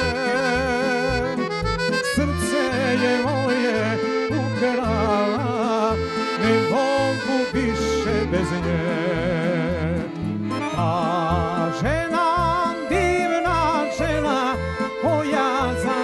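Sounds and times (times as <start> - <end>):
accordion melody: 0.0 - 16.0
folk band playing: 0.0 - 16.0.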